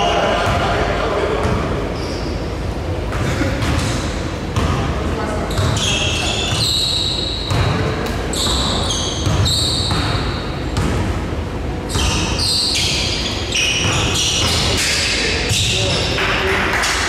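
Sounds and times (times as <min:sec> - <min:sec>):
sneakers squeaking on court: 0:01.4 - 0:04.0, 0:04.6 - 0:11.2, 0:11.8 - 0:14.9
basketball bouncing on floor: 0:07.5 - 0:07.8, 0:08.4 - 0:11.0.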